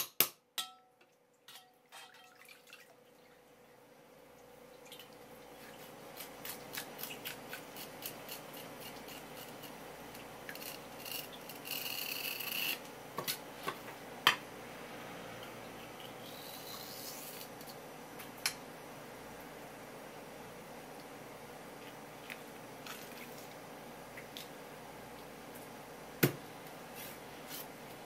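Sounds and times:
knife scraping along eel: 6.1 - 9.8, 10.5 - 12.8.

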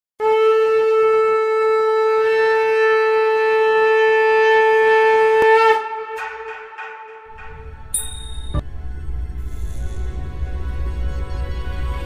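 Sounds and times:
conch shell blown: 0.2 - 7.3.

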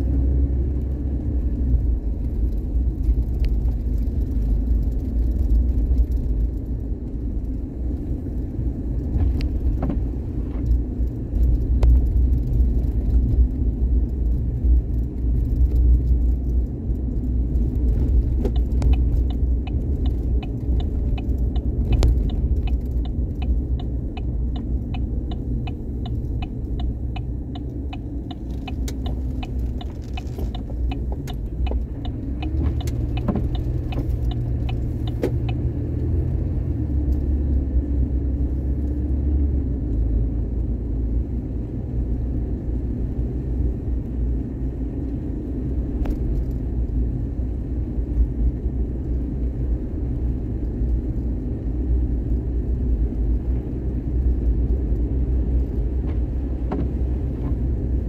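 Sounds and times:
car rumbling in motion: 0.0 - 58.0
even ticking: 17.8 - 35.6.

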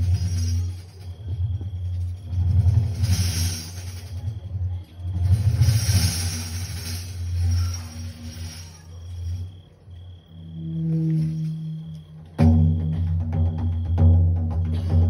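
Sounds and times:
frame drum fast roll: 0.0 - 8.8
drum jingles shimmering: 0.0 - 15.0.

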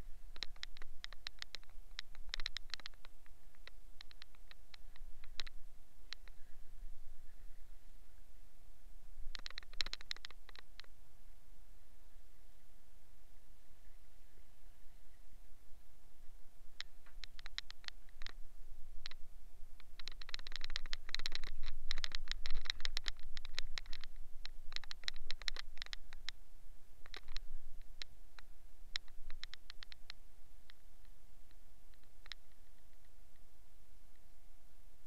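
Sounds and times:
scratchy clicking and crackling: 0.0 - 6.4, 9.3 - 10.9, 16.8 - 18.4, 19.8 - 26.4, 27.0 - 33.4
faint steady hum: 0.0 - 35.0.

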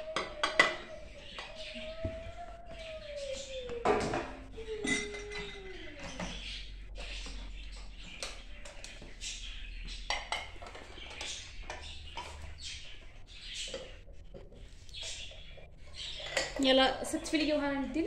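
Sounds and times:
dishes and glasses clinking: 3.8 - 5.9.

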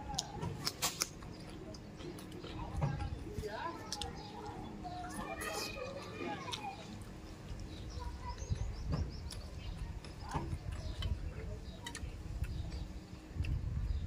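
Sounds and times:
chewing and lip smacking: 0.0 - 14.0
small bird chirping: 6.5 - 14.0.

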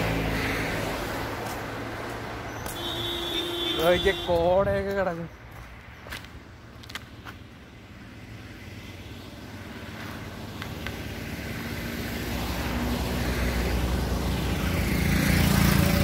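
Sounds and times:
vehicle engine drone: 5.0 - 16.0.

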